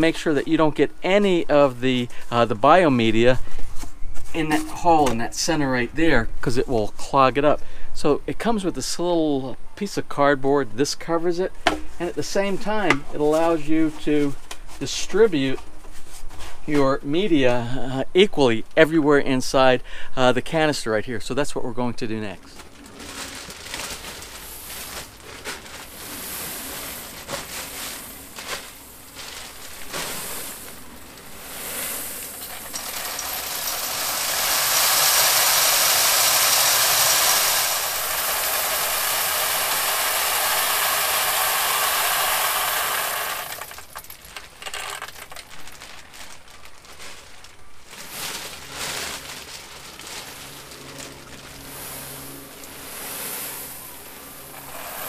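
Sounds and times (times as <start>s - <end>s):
plastic bag rustling: 22.1s - 55.0s
plastic pieces clattering: 22.6s - 31.4s, 32.2s - 51.6s
plastic pieces pouring: 22.6s - 51.7s, 52.6s - 55.0s.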